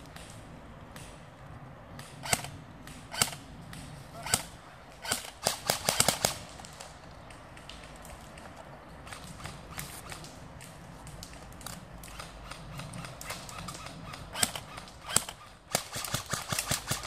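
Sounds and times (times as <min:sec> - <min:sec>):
airsoft gun shots: 0:04.2 - 0:06.4, 0:13.5 - 0:17.0.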